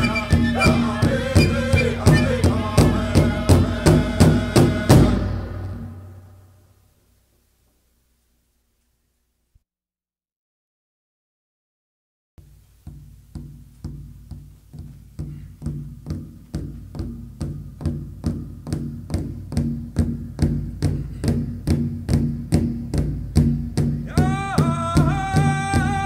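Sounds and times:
person singing: 0:00.0 - 0:06.0, 0:24.1 - 0:26.0
steady drumbeat: 0:00.0 - 0:06.4, 0:12.4 - 0:26.0.

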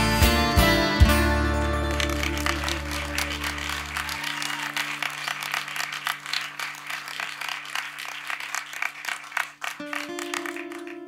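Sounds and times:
band sustained low notes: 0:00.0 - 0:04.1
audience clapping: 0:01.6 - 0:11.0.

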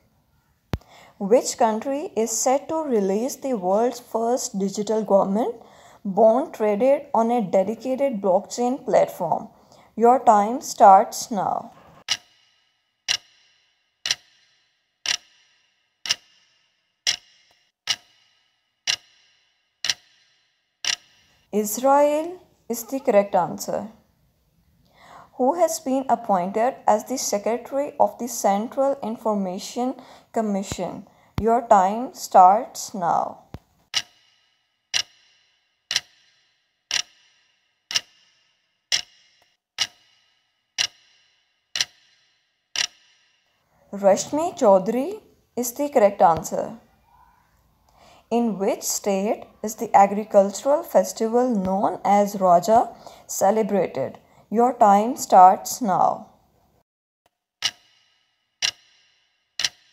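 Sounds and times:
clock ticks with ringing tail: 0:12.0 - 0:21.5, 0:33.8 - 0:43.6, 0:57.6 - 0:59.9.

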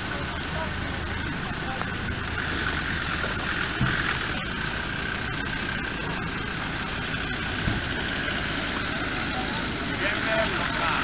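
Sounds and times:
engines idling: 0:00.0 - 0:11.0
tyres over gravel: 0:00.0 - 0:11.0.

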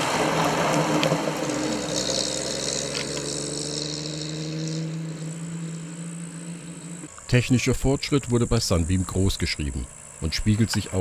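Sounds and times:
car engine driving past: 0:00.0 - 0:07.1.

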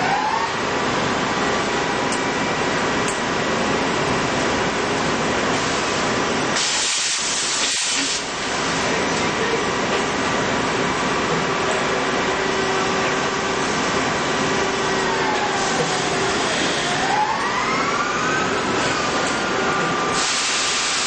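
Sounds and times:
coolant spray hissing: 0:06.6 - 0:08.3, 0:20.2 - 0:21.0
machine whine: 0:08.7 - 0:21.0.

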